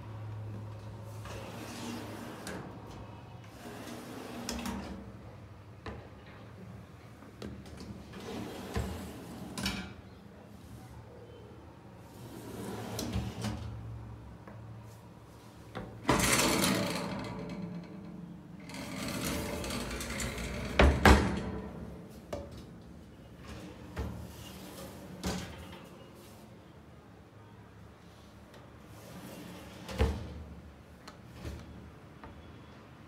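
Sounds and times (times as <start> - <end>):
wire baskets sliding and rattling: 0.9 - 5.1, 8.0 - 9.8, 12.0 - 13.7, 14.9 - 22.3, 23.4 - 26.5, 28.8 - 30.4.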